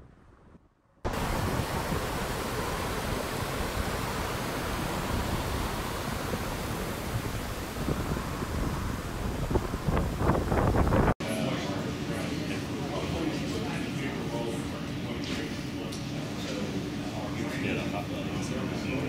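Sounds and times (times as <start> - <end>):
floodwater rushing and churning: 1.1 - 11.2.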